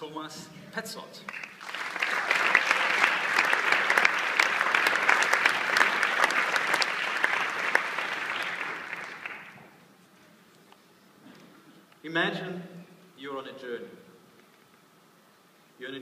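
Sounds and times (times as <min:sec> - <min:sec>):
audience applauding: 0:01.3 - 0:09.7.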